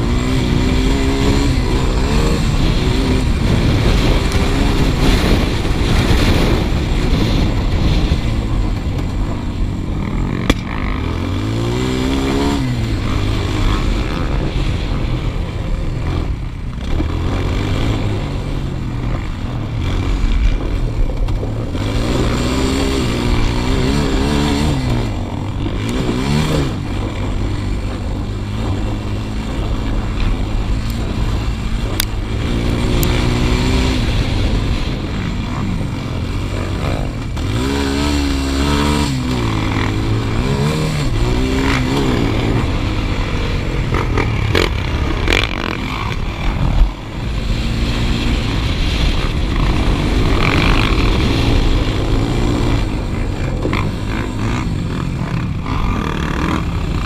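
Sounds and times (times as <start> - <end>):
quad engine revving: 0.0 - 57.0.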